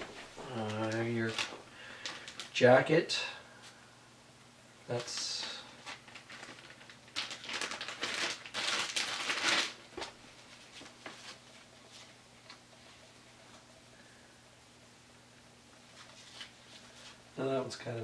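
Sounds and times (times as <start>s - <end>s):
plastic packaging crinkling: 0.0s - 2.6s, 4.9s - 12.1s.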